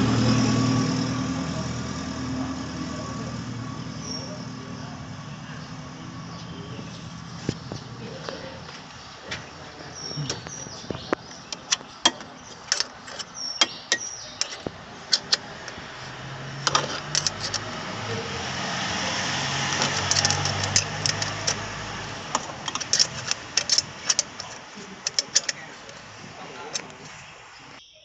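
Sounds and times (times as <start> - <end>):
vehicle engine: 0.0 - 27.8
wrench clicking against bolt: 11.5 - 15.8, 16.6 - 17.7, 19.7 - 25.6.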